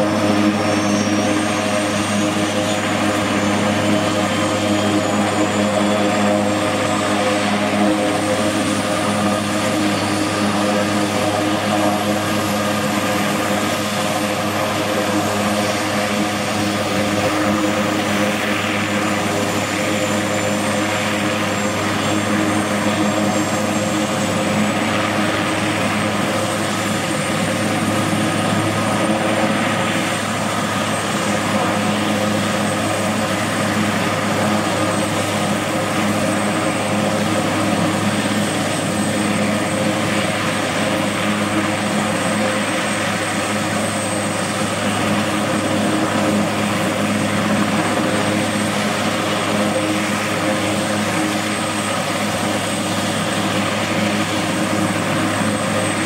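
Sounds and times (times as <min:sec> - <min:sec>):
helicopter rotor noise: 0:00.0 - 0:56.0
turboshaft engine whine: 0:00.0 - 0:56.0.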